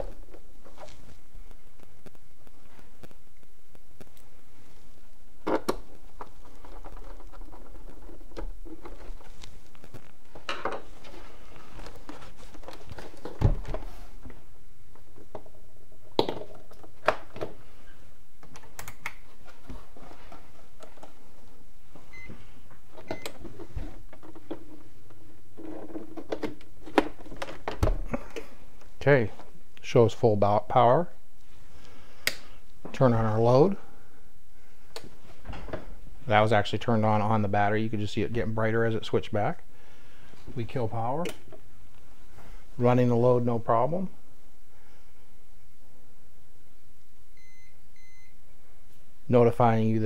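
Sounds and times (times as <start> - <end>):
plastic case being handled: 5.5 - 14.4.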